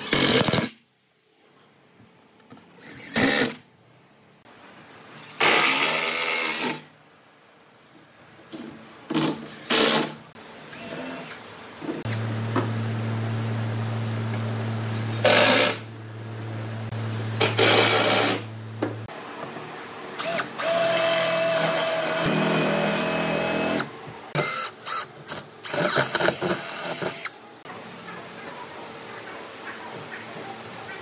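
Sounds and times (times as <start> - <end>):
cordless drill boring wood: 20.2 - 27.3.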